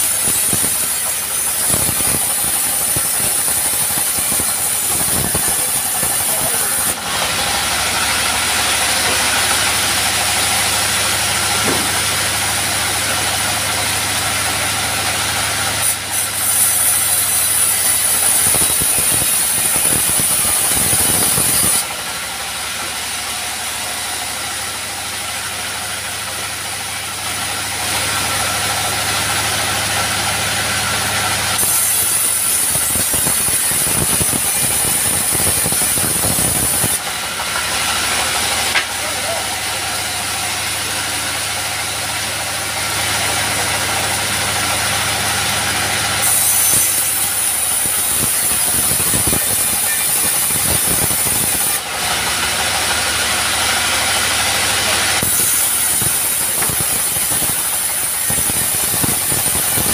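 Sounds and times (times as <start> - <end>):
high-pitched saw whine: 0.0 - 22.0, 27.1 - 52.0
bandsaw blade cutting log: 0.0 - 59.9
diesel engine running steadily: 0.0 - 59.9.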